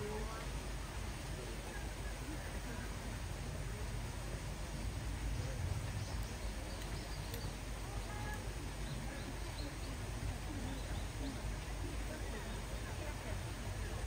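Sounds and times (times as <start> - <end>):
outdoor background noise: 0.0 - 14.0
small birds chirping: 4.8 - 13.1.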